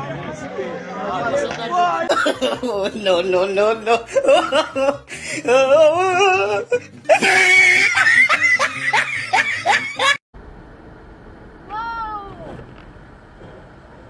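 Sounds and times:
person laughing hard: 0:02.1 - 0:03.1, 0:03.9 - 0:10.2.

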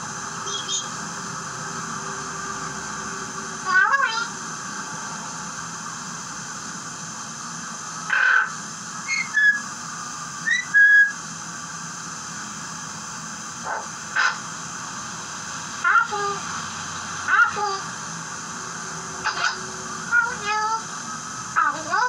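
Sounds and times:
steady background hiss: 0:00.0 - 0:22.0
parrot whistling: 0:00.4 - 0:00.9, 0:08.1 - 0:09.7, 0:10.4 - 0:11.2.

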